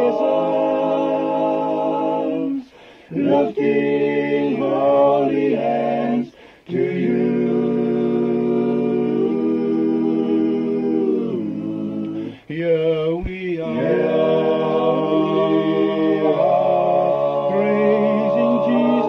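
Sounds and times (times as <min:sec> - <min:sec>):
men singing a cappella: 0:00.0 - 0:19.0.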